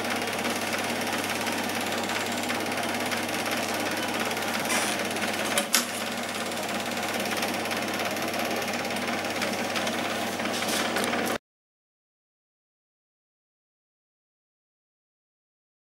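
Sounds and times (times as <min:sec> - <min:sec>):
film projector clattering: 0:00.0 - 0:11.4
projector low hum: 0:00.0 - 0:11.4.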